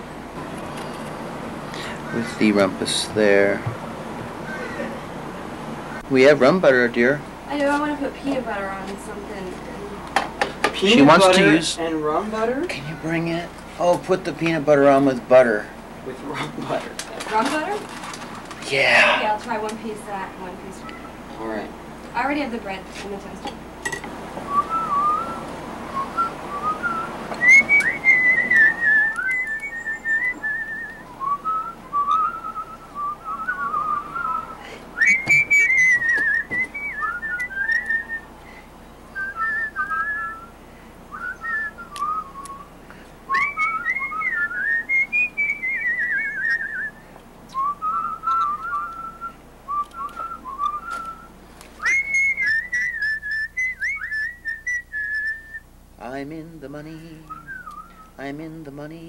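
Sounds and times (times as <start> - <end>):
person whistling a tune: 24.5 - 25.4, 26.0 - 38.2, 39.2 - 40.5, 41.1 - 42.7, 43.3 - 55.6, 57.2 - 58.1.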